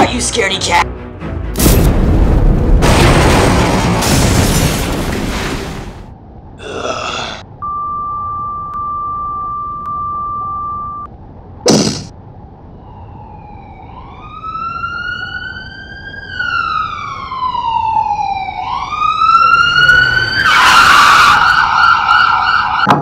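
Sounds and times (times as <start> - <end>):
loud sharp hit: 1.6 - 5.8
police siren sound effect: 12.8 - 22.9.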